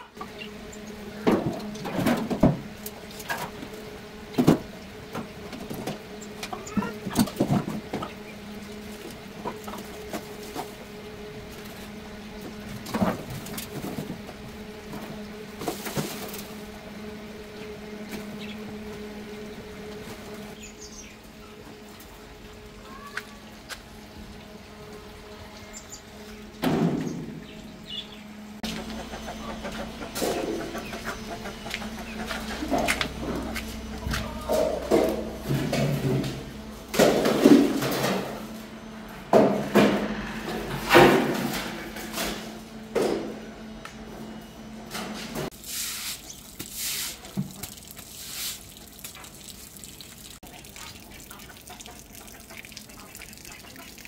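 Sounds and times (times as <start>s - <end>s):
birds chirping and clucking: 0.0s - 10.8s, 11.6s - 22.1s, 24.0s - 38.1s
steady low hum: 0.0s - 54.0s.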